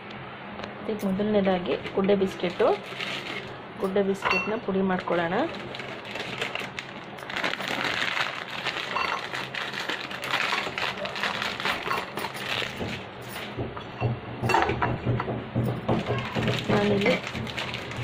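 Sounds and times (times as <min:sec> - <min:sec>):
biscuits clinking into metal bowl: 0:01.9 - 0:07.8, 0:08.5 - 0:15.0
plastic packet crinkling: 0:02.3 - 0:03.6, 0:04.6 - 0:13.0, 0:16.4 - 0:18.0.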